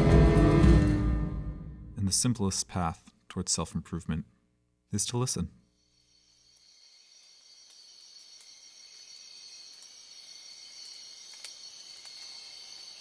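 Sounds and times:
high-pitched insect trilling drone: 5.8 - 13.0.

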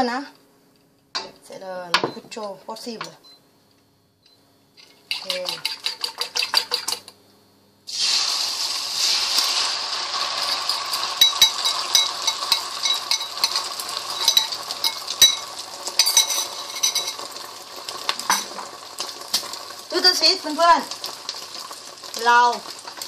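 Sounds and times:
egg sizzling in hot oil: 4.8 - 7.1, 7.9 - 23.0
sharp crackling pops: 17.4 - 23.0.

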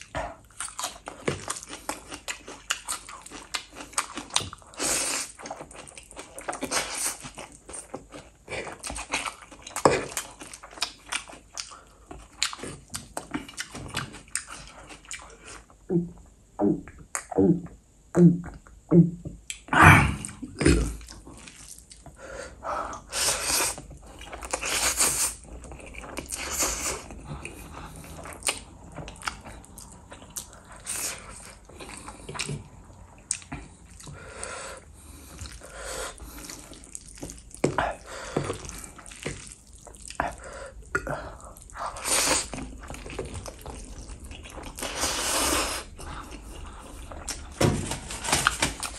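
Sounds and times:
wet chewing and smacking: 0.0 - 15.9, 19.4 - 22.2, 22.9 - 48.9
slurping noodles: 41.8 - 47.5.

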